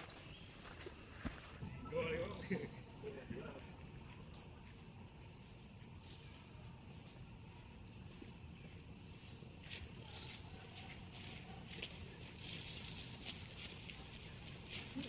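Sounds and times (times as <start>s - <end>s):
small bird chirping: 4.3s - 6.5s, 7.4s - 8.2s, 12.2s - 14.4s.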